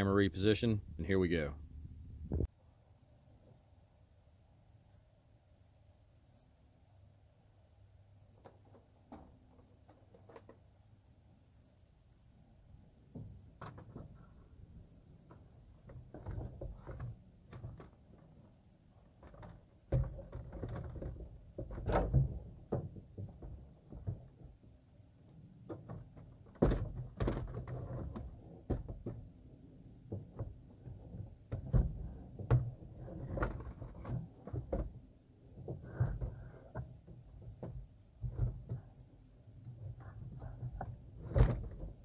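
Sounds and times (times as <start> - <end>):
plastic bumping and scraping: 13.1 - 14.4, 15.2 - 24.6, 25.6 - 29.4, 30.0 - 42.0.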